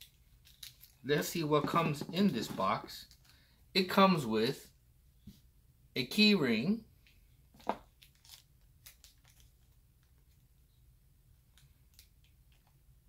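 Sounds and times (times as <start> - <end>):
plastic bag crinkling: 7.9 - 9.7.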